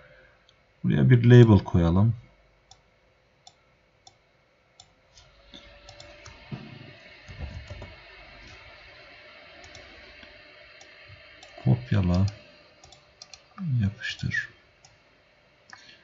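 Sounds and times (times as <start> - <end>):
computer mouse clicking: 4.8 - 6.4, 9.6 - 13.5.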